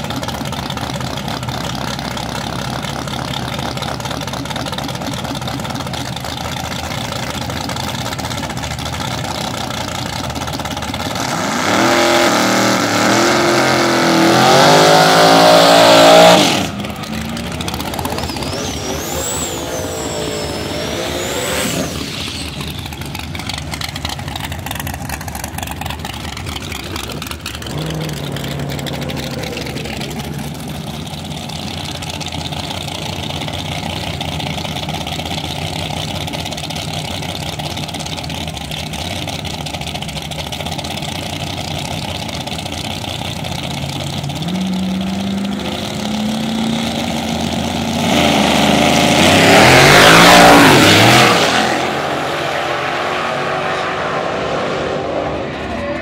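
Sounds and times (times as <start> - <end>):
race car engines idling: 0.0 - 53.1, 55.2 - 56.0
race cars launching at full throttle: 10.5 - 25.8, 44.3 - 56.0.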